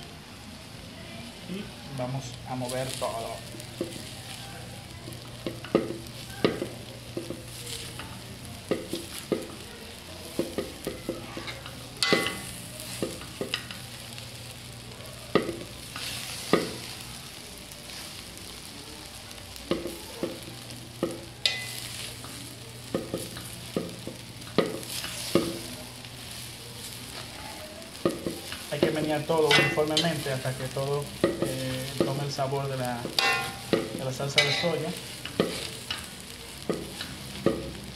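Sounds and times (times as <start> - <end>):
food sizzling: 0.0 - 37.9
metal spoon scraping pan: 33.2 - 34.8.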